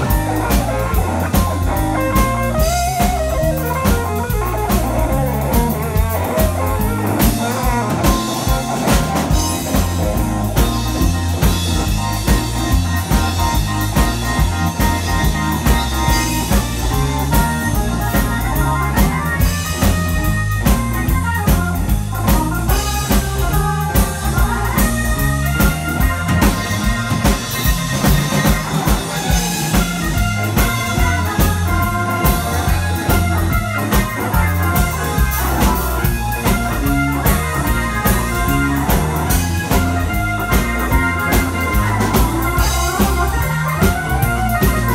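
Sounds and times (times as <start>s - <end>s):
drum kit: 0.0s - 44.9s
electric bass: 0.0s - 44.9s
electric guitar: 0.0s - 44.9s
electric keyboard: 0.0s - 44.9s.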